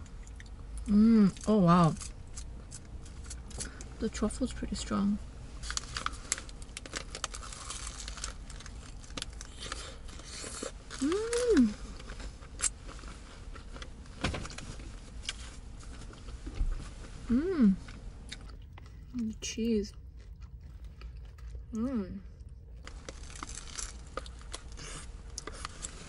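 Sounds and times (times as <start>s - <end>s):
person chewing food: 0.0s - 0.9s, 17.8s - 26.0s
paper wrapper crinkling: 5.6s - 11.7s, 22.8s - 26.0s
person humming: 11.0s - 11.8s, 17.3s - 17.8s.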